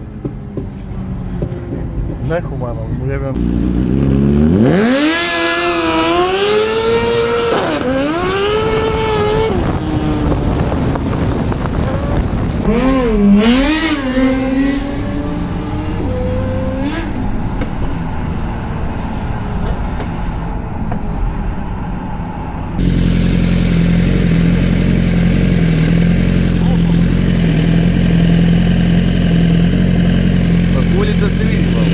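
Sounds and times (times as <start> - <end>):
motorcycle engine revving: 3.3 - 17.9, 22.8 - 31.9.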